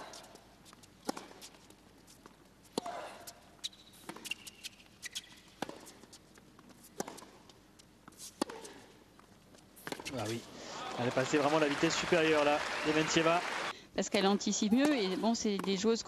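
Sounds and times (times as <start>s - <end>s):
tennis ball hit by racquets: 1.0s - 1.5s, 3.9s - 6.0s, 6.7s - 7.5s, 8.1s - 9.0s, 9.8s - 10.4s.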